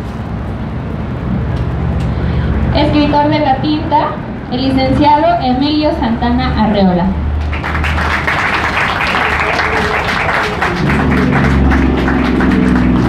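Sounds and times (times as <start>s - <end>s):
group applauding: 7.4s - 13.0s.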